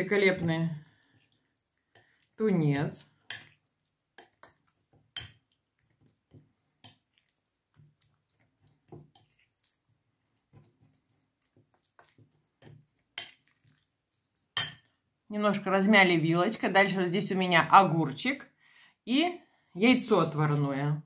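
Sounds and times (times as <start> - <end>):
fork mashing wet tuna: 0.2 - 14.9.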